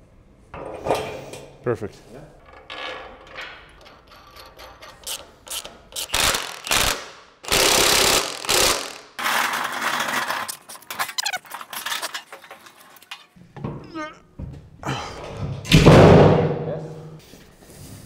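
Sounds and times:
ratchet-like clicking: 4.4s - 9.1s.

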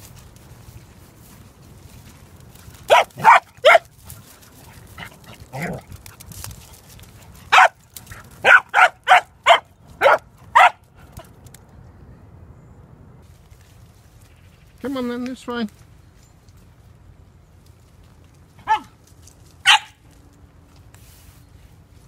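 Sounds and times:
dog barking: 2.9s - 3.9s, 7.5s - 7.8s, 8.4s - 10.8s, 18.6s - 18.9s, 19.6s - 20.0s.

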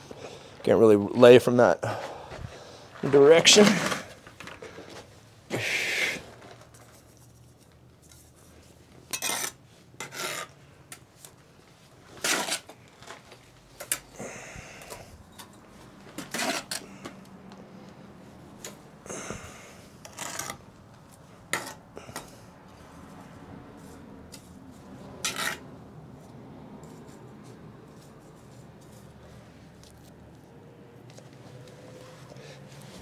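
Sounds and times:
trowel scraping mortar on brick: 9.1s - 10.6s, 12.1s - 12.8s, 16.2s - 16.8s, 20.0s - 20.6s, 25.2s - 25.7s.

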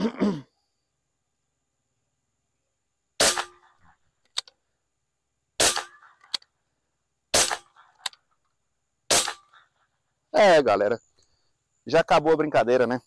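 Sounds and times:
air rifle shots: 3.2s - 3.8s, 5.6s - 6.4s, 7.3s - 8.1s, 9.1s - 9.6s.

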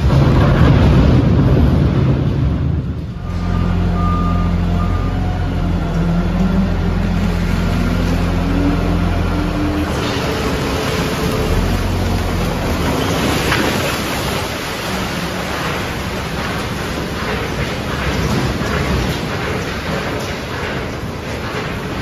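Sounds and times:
trash crashing into pit: 0.0s - 3.0s
truck engine running high: 0.0s - 22.0s.

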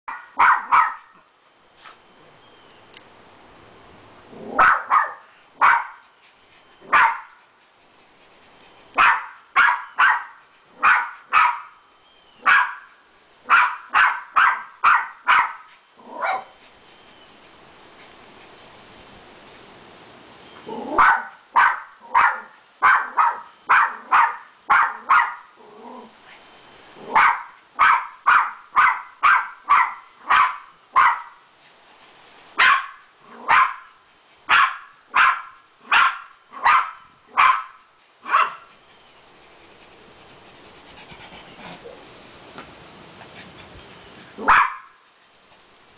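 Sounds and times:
dog barking: 0.1s - 1.1s, 4.6s - 6.0s, 6.9s - 7.4s, 9.0s - 11.8s, 12.4s - 12.9s, 13.5s - 16.5s, 21.0s - 25.5s, 27.1s - 31.4s, 32.6s - 33.9s, 34.5s - 38.7s, 44.4s - 45.0s.

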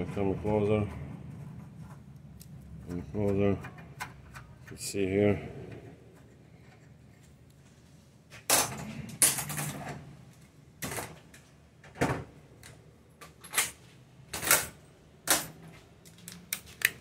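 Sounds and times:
tools clattering and rustling: 13.2s - 16.9s.

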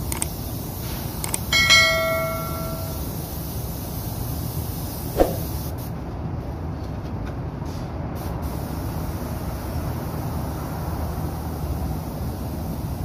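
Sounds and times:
bell ding: 1.6s - 3.0s.

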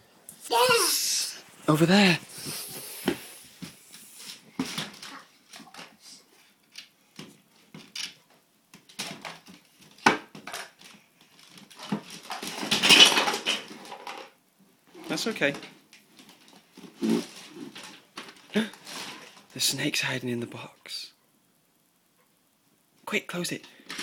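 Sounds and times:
noisy rustle: 16.1s - 20.7s.

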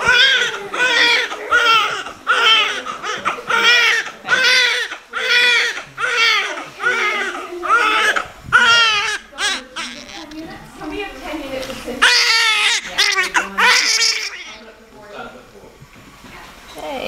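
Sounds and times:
newborn baby crying: 0.0s - 10.4s, 12.0s - 14.6s.

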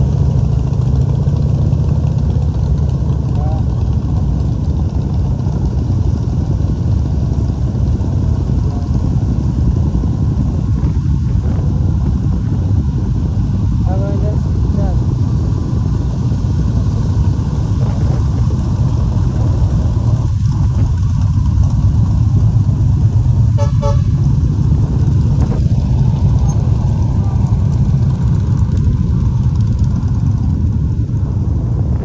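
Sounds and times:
engines and traffic rumble: 0.0s - 32.0s
vehicle horn toot: 23.5s - 24.2s.

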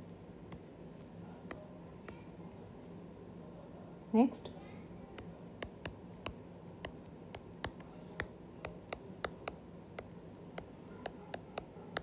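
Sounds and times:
stylus tapping on glass screen: 5.2s - 12.0s.

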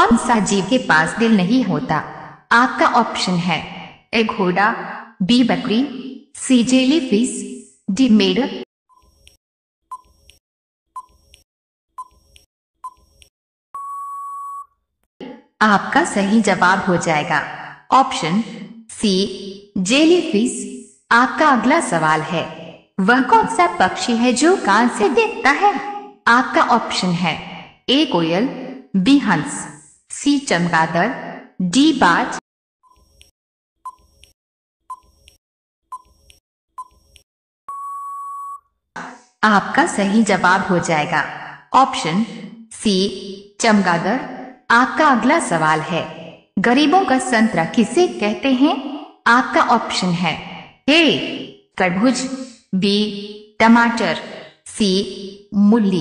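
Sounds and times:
countdown timer ticking beeps: 9.9s - 10.2s, 12.0s - 12.2s, 13.8s - 14.7s, 33.8s - 34.3s, 34.9s - 35.3s, 36.8s - 38.6s
long steady beep: 13.8s - 14.7s, 37.7s - 38.6s
short beeps: 13.8s - 14.7s, 37.7s - 38.6s.

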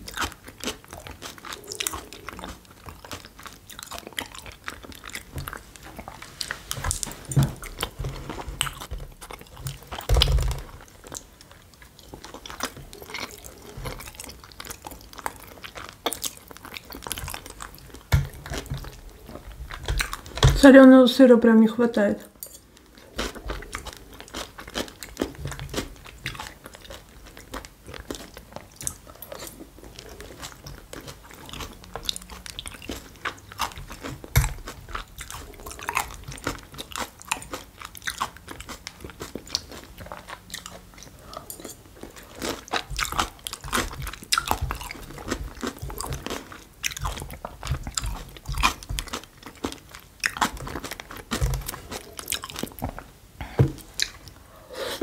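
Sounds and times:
crunchy bites and chewing: 22.8s - 53.0s.

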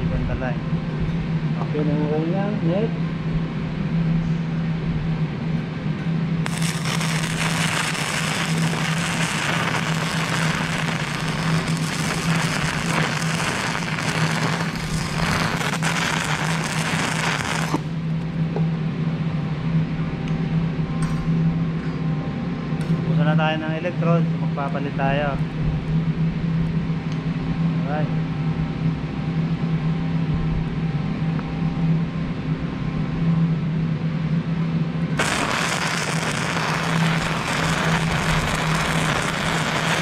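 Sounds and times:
low hum: 0.0s - 40.0s
welding arc crackling: 6.4s - 18.0s, 35.2s - 40.0s.

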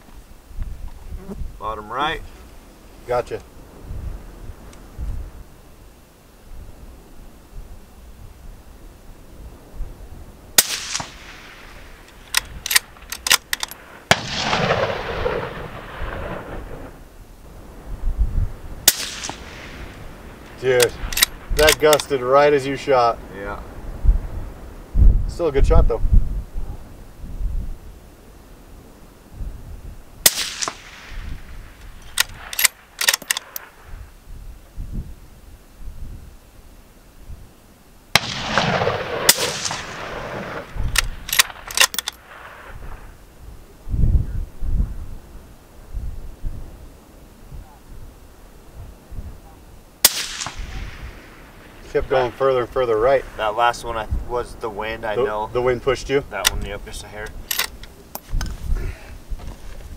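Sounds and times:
rifle shots: 10.6s - 16.9s, 18.8s - 19.9s, 30.2s - 33.8s, 38.1s - 43.0s, 50.0s - 53.2s
rifle bolt metallic clicks: 12.0s - 13.8s, 20.8s - 22.1s, 31.8s - 33.7s, 40.7s - 42.4s, 56.4s - 58.5s.

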